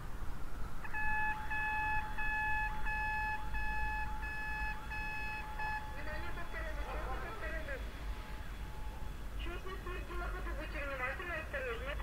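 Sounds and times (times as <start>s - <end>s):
railway warning signal beeping: 0.8s - 9.2s.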